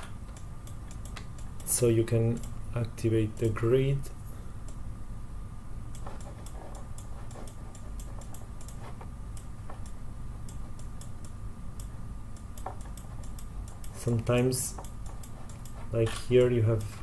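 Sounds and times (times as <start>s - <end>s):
steady low hum: 0.0s - 17.0s
mouse and keyboard clicking: 12.6s - 17.0s.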